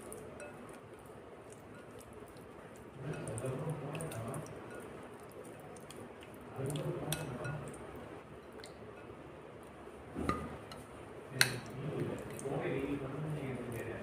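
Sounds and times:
wet squishing of paste: 0:00.0 - 0:08.9, 0:09.6 - 0:14.0.

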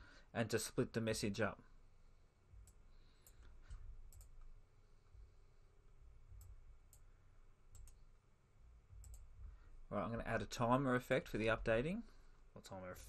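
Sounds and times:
computer mouse clicks: 0:02.6 - 0:04.6, 0:07.7 - 0:08.0, 0:09.0 - 0:09.3.

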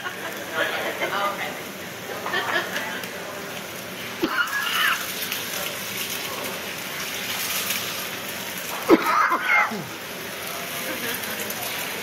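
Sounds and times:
food sizzling on a griddle: 0:00.0 - 0:12.0.

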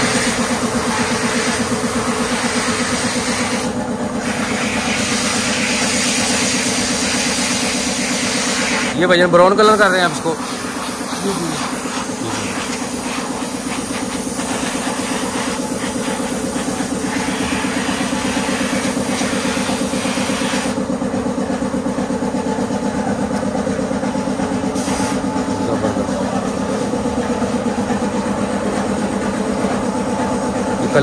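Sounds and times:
paint spray gun hissing: 0:00.0 - 0:20.8, 0:24.6 - 0:25.8
air compressor humming: 0:00.0 - 0:31.0.

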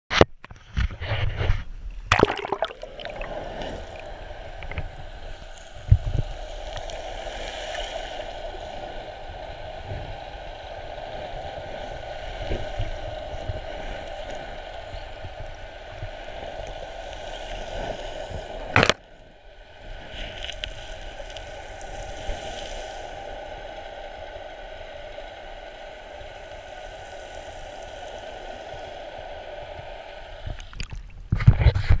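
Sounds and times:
muffled underwater hiss: 0:01.2 - 0:32.0
water splashing and sloshing: 0:02.0 - 0:05.0.

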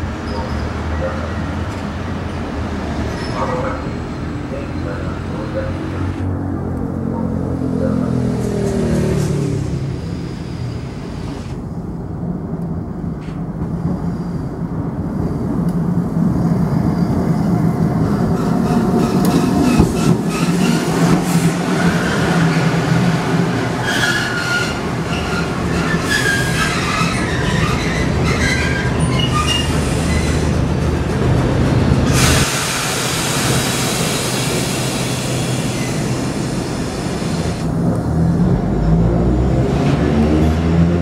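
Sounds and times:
tram motors and wheels on rails: 0:00.0 - 0:41.0
wheel and brake squeals: 0:00.2 - 0:01.4, 0:03.0 - 0:05.7, 0:19.0 - 0:22.7, 0:23.8 - 0:30.6, 0:35.5 - 0:36.4.

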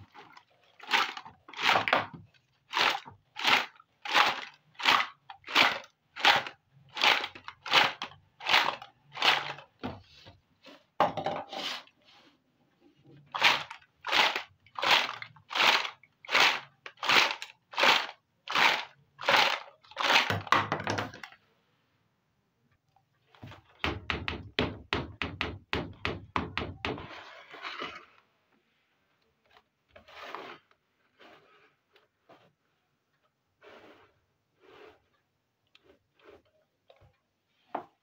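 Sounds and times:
plastic toys rattling in basket: 0:00.0 - 0:09.8, 0:13.3 - 0:21.4
plastic clicks and knocks: 0:20.2 - 0:21.4.

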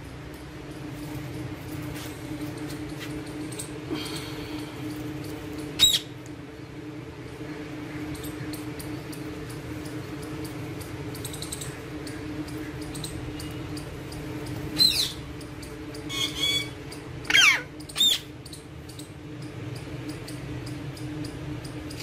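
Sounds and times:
steady low hum: 0:00.0 - 0:22.0
parakeet calls: 0:05.8 - 0:06.2, 0:10.7 - 0:19.1.

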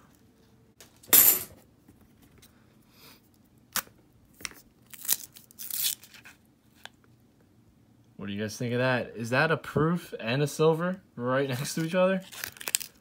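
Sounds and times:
coins clinking: 0:01.1 - 0:01.5.

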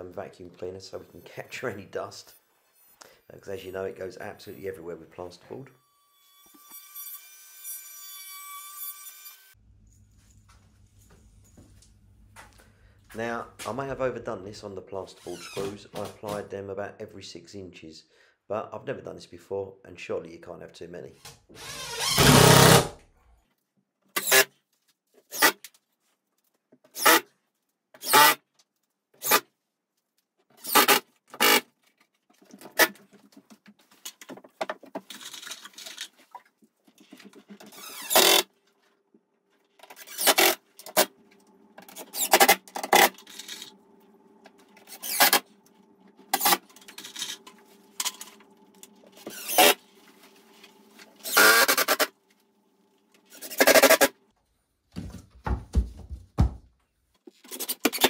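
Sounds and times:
impact driver driving screws: 0:21.6 - 0:23.0, 0:37.7 - 0:38.5, 0:39.9 - 0:41.1, 0:44.9 - 0:45.4, 0:51.2 - 0:52.1.

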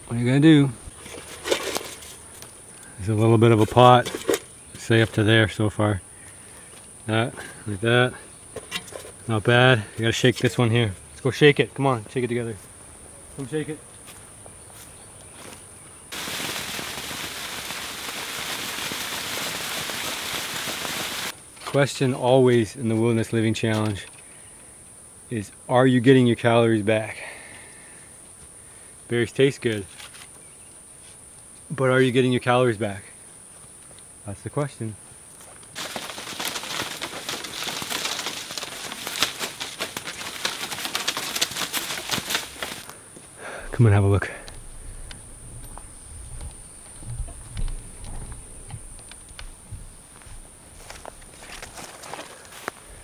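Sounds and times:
leaves rustling: 0:00.0 - 0:10.0, 0:12.5 - 0:21.6, 0:35.0 - 0:53.0
berries falling on plastic sheet: 0:16.1 - 0:21.3, 0:35.7 - 0:43.0
mulberries pattering onto plastic tarp: 0:16.1 - 0:21.3, 0:35.7 - 0:43.0, 0:50.2 - 0:52.8.

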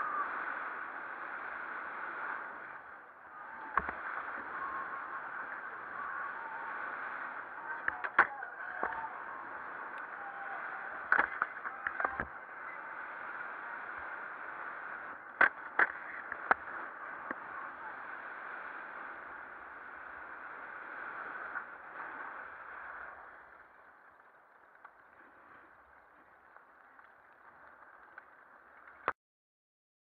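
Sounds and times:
skis scraping over packed snow: 0:00.0 - 0:29.1.

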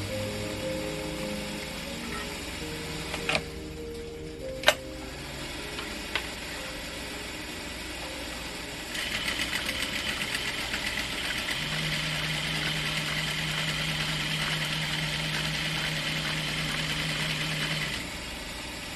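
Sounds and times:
low hum: 0:00.0 - 0:18.9
sewing machine stitching: 0:08.9 - 0:18.1.

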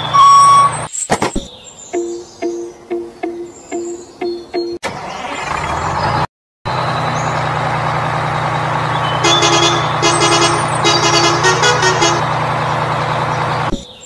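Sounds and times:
truck engine running: 0:02.0 - 0:13.8
short horn honks: 0:09.2 - 0:12.3.

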